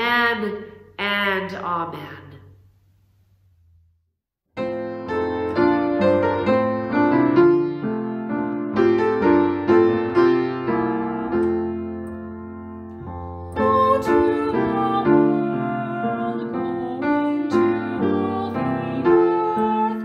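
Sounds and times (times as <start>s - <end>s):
gentle piano music: 4.6s - 20.0s.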